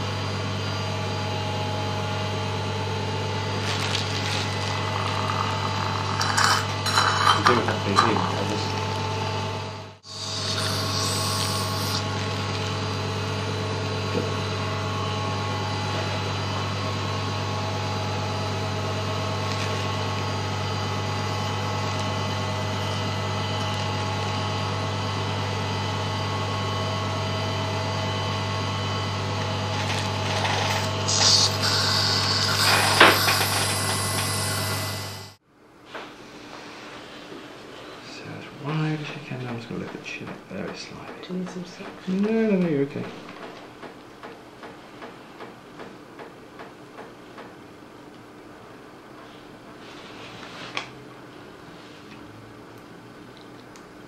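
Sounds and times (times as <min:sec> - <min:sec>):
dental equipment humming: 0:00.0 - 0:35.4.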